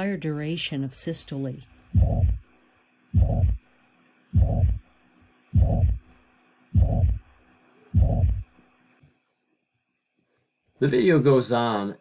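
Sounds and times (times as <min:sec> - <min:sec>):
heartbeat with whooshing murmur: 0:02.0 - 0:02.5, 0:03.2 - 0:03.6, 0:04.4 - 0:04.9, 0:05.6 - 0:06.1, 0:06.8 - 0:07.3, 0:08.0 - 0:08.5.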